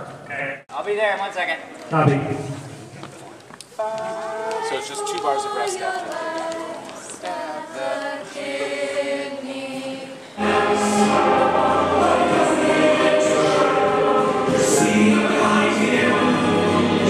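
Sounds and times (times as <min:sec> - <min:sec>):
choir singing: 0:03.8 - 0:17.0
orchestra and band playing: 0:10.4 - 0:17.0.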